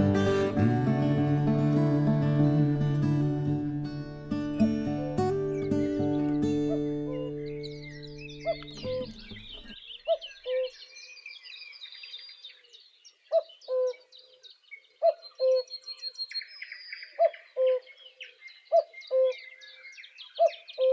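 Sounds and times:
small birds chirping and trilling: 4.1 - 20.9
bird two-note call: 4.6 - 9.8.

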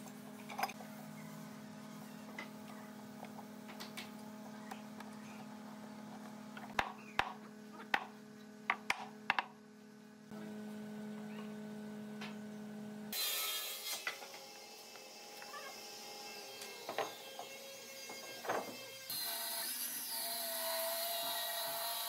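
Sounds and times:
steady workshop hum: 0.0 - 22.0
sharp knocks and taps: 8.7 - 9.5.

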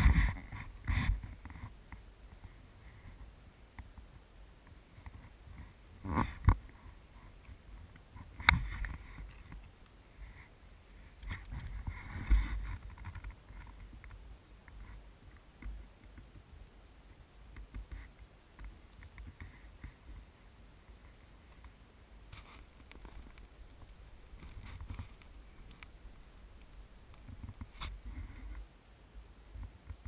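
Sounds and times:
wind rumble on microphone: 0.0 - 21.8.

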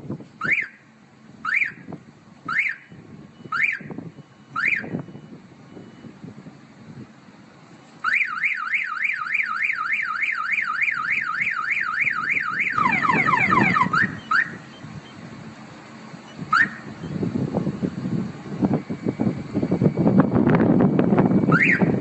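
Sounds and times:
warbling alarm siren: 1.4 - 6.2, 8.0 - 15.3, 15.9 - 22.0.

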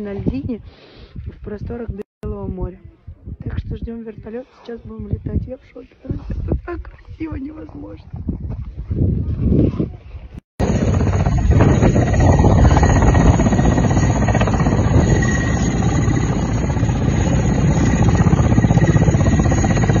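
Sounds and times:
helicopter engine whine: 10.6 - 20.0
rapid rotor beat: 10.6 - 20.0.

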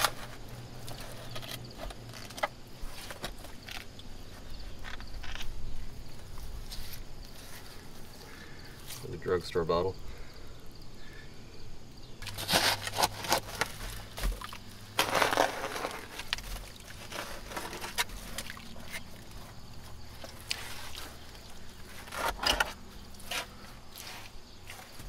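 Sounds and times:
shovel scraping wet soil: 12.2 - 19.5, 20.1 - 25.0.

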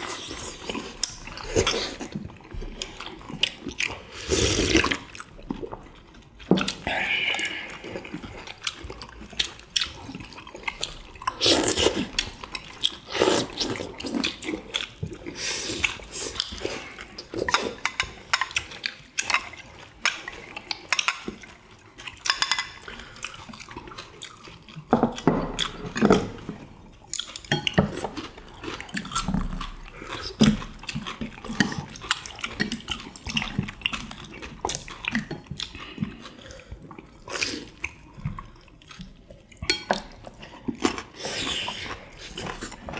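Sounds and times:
wet chewing and slurping: 0.0 - 42.9.

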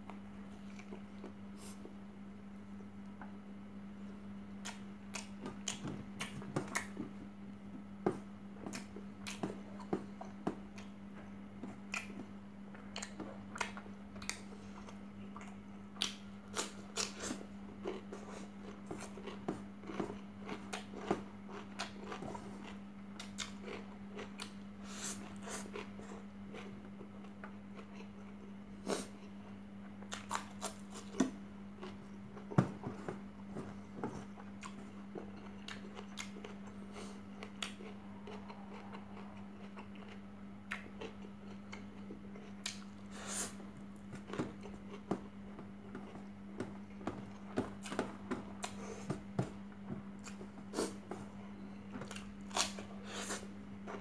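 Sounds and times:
steady low hum: 0.0 - 54.0
chewing and lip smacks: 11.6 - 24.6, 29.2 - 32.6, 34.2 - 43.1.

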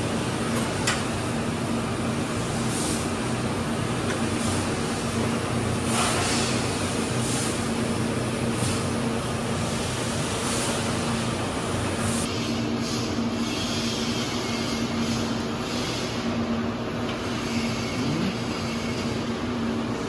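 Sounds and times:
machine hum: 15.6 - 20.0.

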